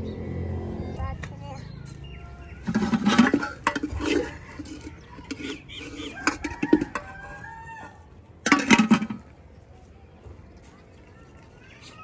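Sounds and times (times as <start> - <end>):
chickens clucking: 2.6 - 8.1
rooster crowing: 6.1 - 8.1.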